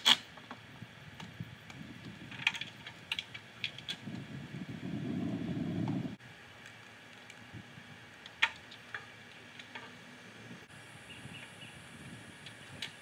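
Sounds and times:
low rumbling: 3.6 - 6.2.

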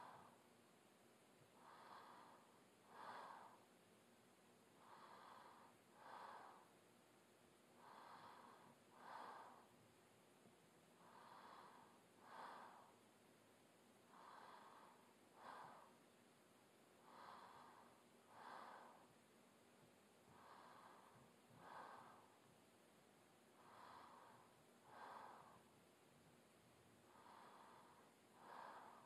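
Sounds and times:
woman breathing in sleep: 0.0 - 0.5, 1.4 - 3.8, 4.7 - 6.8, 7.7 - 9.8, 11.0 - 13.2, 14.0 - 16.2, 16.9 - 19.2, 20.2 - 25.9, 27.0 - 29.0.

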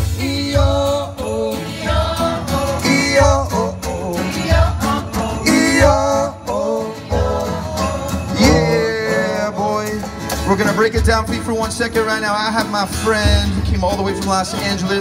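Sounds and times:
several voices singing: 0.0 - 10.4
strummed acoustic guitars: 0.0 - 15.0.

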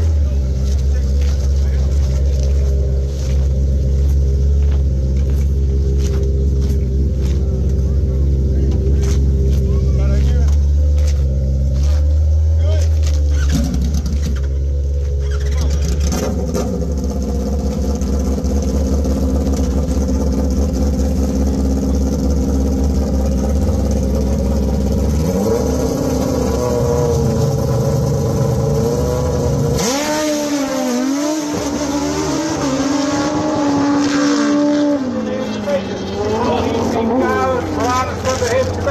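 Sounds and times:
motorcycle engine revving: 0.0 - 38.9
motorcycle accelerating through gears: 13.3 - 38.9.

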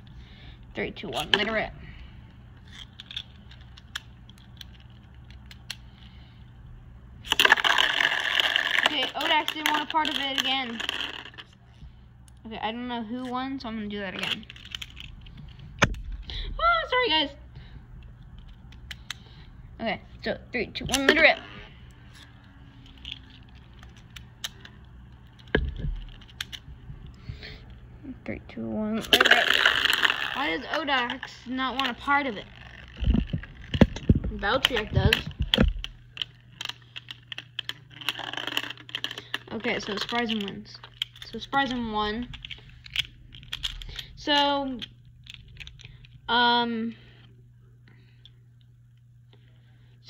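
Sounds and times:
faint steady hum: 0.0 - 50.0
spinning tops clicking together: 7.2 - 11.5, 29.1 - 33.8.

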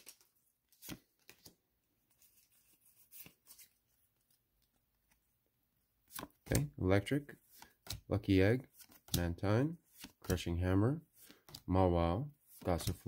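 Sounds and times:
trading cards clicking and sliding: 6.0 - 10.5.

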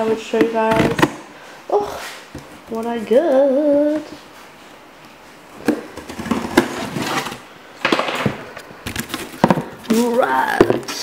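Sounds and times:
cardboard scraping and rustling: 5.7 - 7.5.

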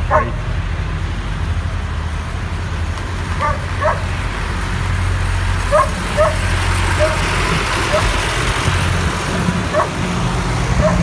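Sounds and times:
dog barking: 0.0 - 0.4, 3.4 - 4.1, 5.7 - 6.4, 7.0 - 7.2, 7.9 - 8.2, 9.7 - 10.0, 10.8 - 11.0
tractor diesel engine running: 0.0 - 11.0.

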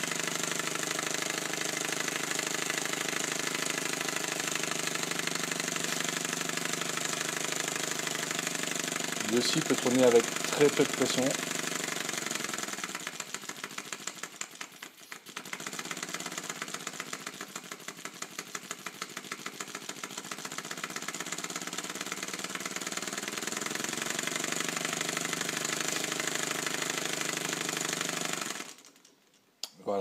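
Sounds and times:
air engine chuffing: 9.1 - 11.5.

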